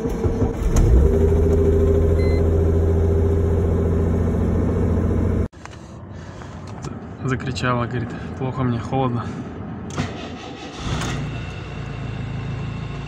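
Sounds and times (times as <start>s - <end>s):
car engine starting and idling: 0.0s - 5.5s, 9.9s - 13.0s.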